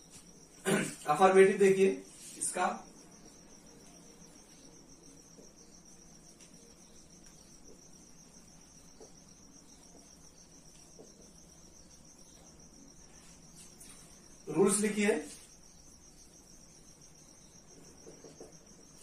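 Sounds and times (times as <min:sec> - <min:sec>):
cricket trill: 0:00.0 - 0:19.0
marker tapping on whiteboard: 0:08.9 - 0:09.2, 0:10.7 - 0:11.4, 0:18.0 - 0:18.7.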